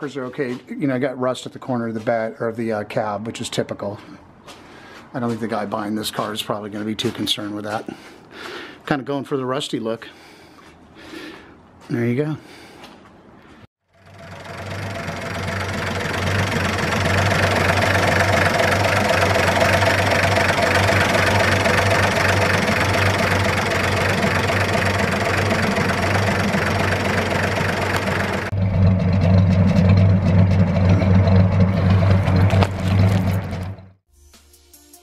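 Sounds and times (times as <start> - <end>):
truck engine idling: 13.9 - 34.0
deep exhaust rumble: 14.0 - 34.0.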